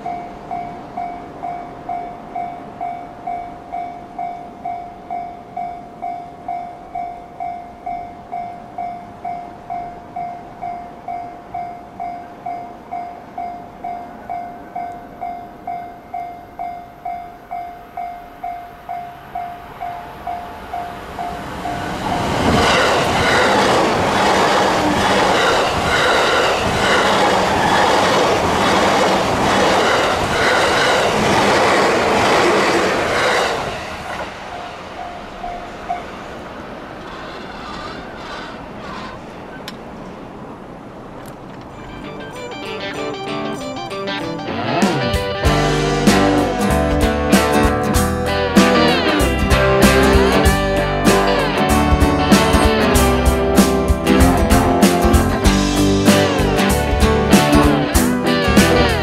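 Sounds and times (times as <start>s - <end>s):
level-crossing bell ringing: 0.0s - 22.4s, 41.7s - 46.0s
train wheels clacking: 20.7s - 36.1s, 45.2s - 59.0s.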